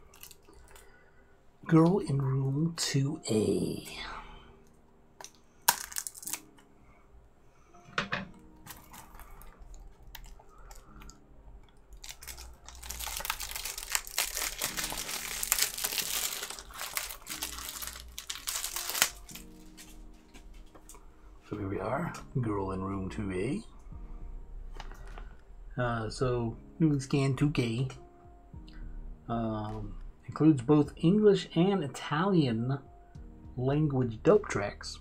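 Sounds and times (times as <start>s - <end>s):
plastic wrap tearing and crinkling: 0.0s - 0.8s, 5.6s - 6.5s, 8.6s - 11.1s, 11.9s - 20.5s.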